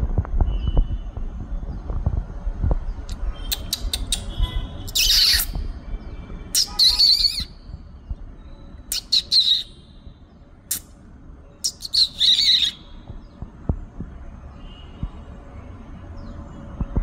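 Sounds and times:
bird giving harsh rasping calls: 0:03.6 - 0:05.6, 0:06.6 - 0:07.6, 0:08.9 - 0:09.8, 0:11.7 - 0:12.9.

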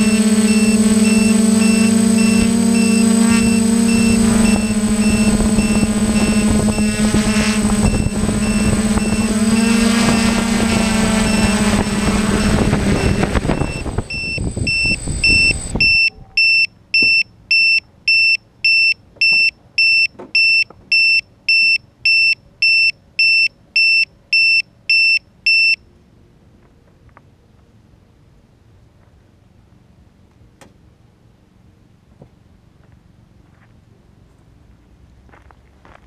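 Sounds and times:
loud steady hum: 0:00.0 - 0:17.4
short high electronic beeps: 0:00.0 - 0:25.8.

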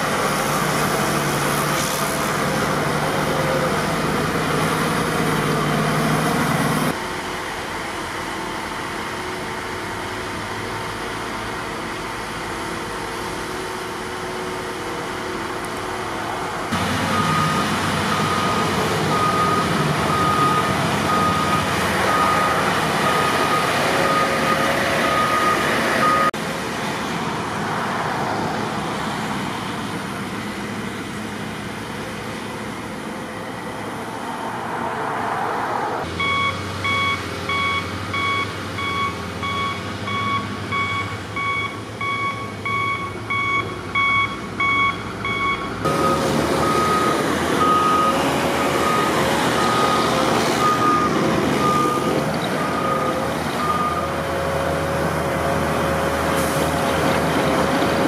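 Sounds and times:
diesel engines running: 0:00.0 - 0:58.0
reverse alarm beeping: 0:17.1 - 0:26.4, 0:36.2 - 0:54.2.

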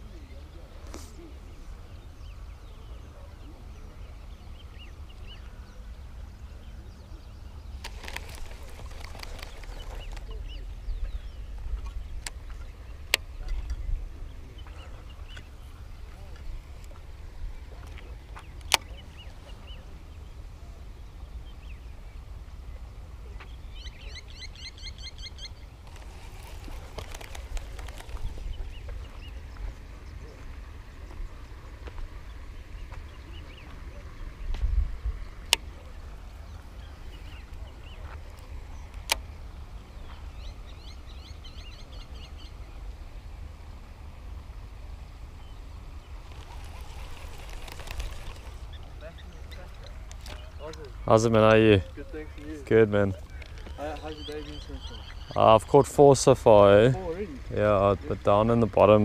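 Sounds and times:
birds chirping: 0:00.0 - 0:59.0
rustle with light clicks: 0:07.6 - 0:19.7, 0:25.8 - 0:42.5, 0:45.9 - 0:55.4
wind rumble on microphone: 0:25.5 - 0:51.1.

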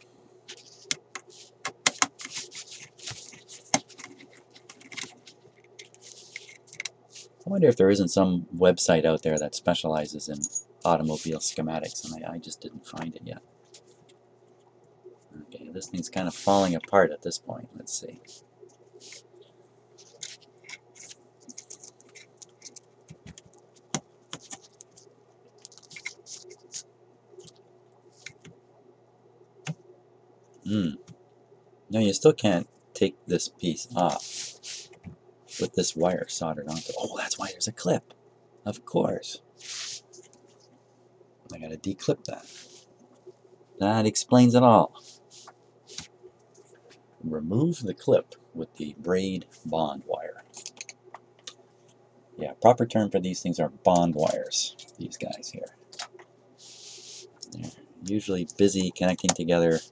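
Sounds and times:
faint steady hum: 0:00.0 - 0:59.9
hands handling wires and metal: 0:00.5 - 0:07.4, 0:20.0 - 0:27.6, 0:50.4 - 0:51.5.

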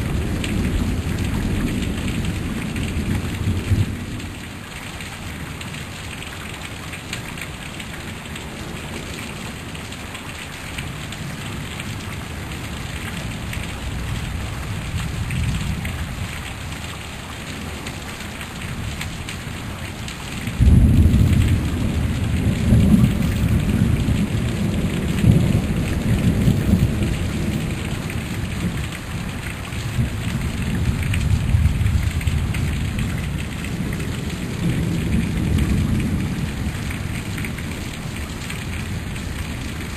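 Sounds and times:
heavy rain falling: 0:00.0 - 0:39.9
thunder rolling: 0:20.6 - 0:27.9.

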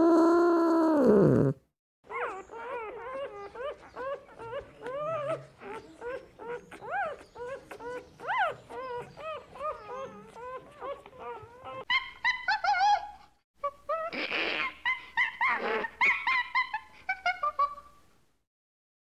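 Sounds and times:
animal whimpering: 0:00.0 - 0:12.0.

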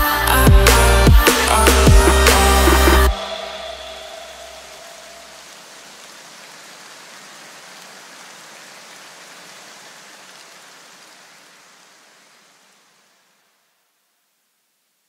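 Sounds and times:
hiss-like noise wash: 0:00.0 - 0:15.0.

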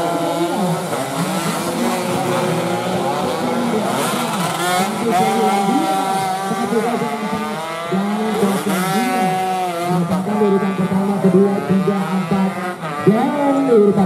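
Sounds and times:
racing motorcycles revving: 0:00.0 - 0:14.0.

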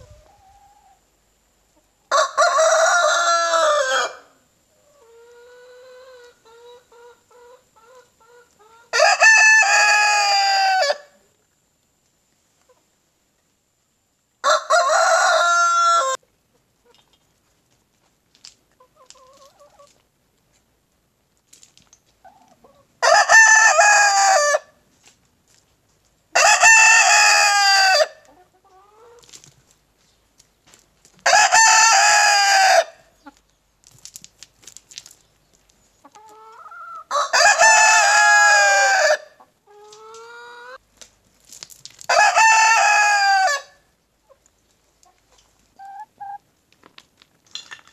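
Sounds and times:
roosters crowing: 0:02.1 - 0:04.4, 0:08.9 - 0:11.2, 0:14.4 - 0:16.2, 0:23.0 - 0:24.8, 0:26.4 - 0:28.2, 0:31.2 - 0:33.1, 0:36.7 - 0:39.4, 0:42.1 - 0:43.8
hens clucking softly: 0:04.7 - 0:09.0, 0:36.0 - 0:37.3.

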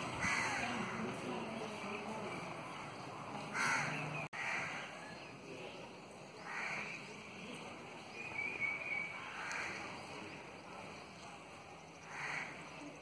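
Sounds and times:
faint outdoor background noise: 0:00.0 - 0:13.0
crow cawing: 0:00.2 - 0:01.0, 0:03.5 - 0:04.9, 0:12.0 - 0:12.6.

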